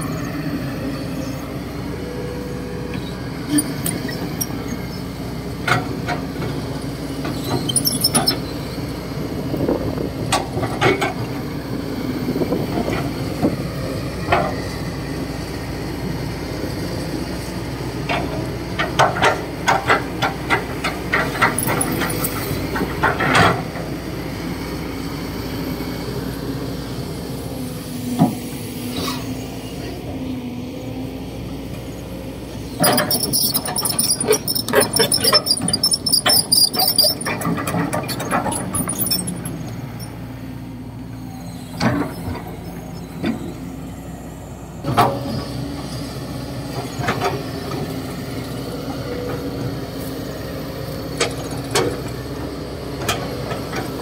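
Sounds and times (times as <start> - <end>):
excavator running: 0.0 - 54.0
metallic clanks and knocks: 18.8 - 23.6, 32.8 - 40.2.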